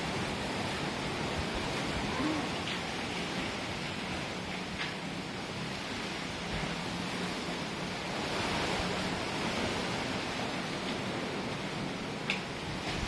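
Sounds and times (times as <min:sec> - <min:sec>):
rain: 0:00.0 - 0:13.0
strong wind: 0:00.0 - 0:13.0.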